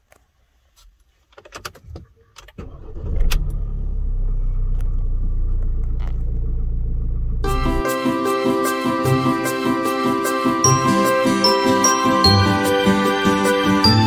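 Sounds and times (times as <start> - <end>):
engine starting and idling: 2.4 - 7.8.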